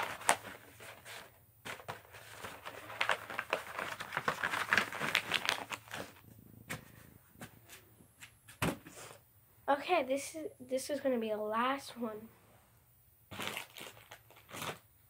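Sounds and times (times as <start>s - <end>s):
paper rustling and crinkling: 0.0s - 8.6s, 13.3s - 14.8s.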